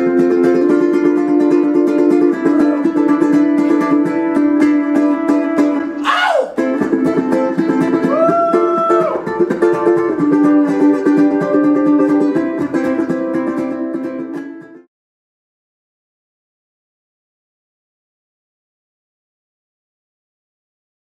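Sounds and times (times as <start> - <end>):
ukulele strummed quickly: 0.0 - 6.0, 6.6 - 14.9.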